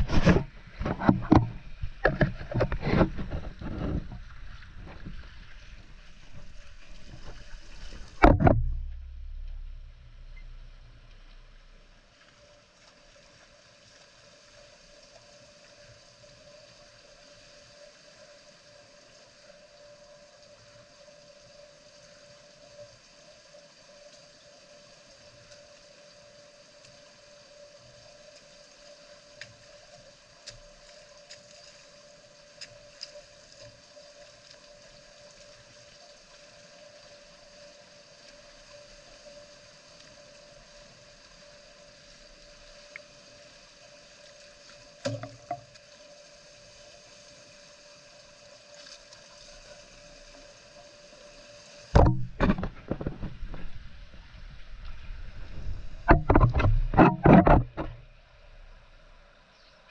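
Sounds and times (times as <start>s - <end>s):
steady hum: 0.0s - 12.3s.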